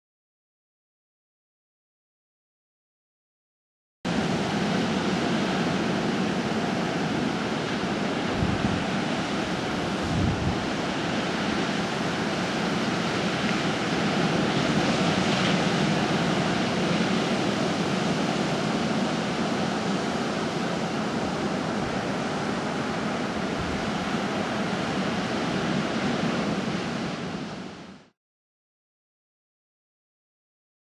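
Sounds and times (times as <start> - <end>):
wind on microphone: 4.1 - 28.0
ocean surf breaking: 4.1 - 28.1
low wind thumps: 10.0 - 10.7.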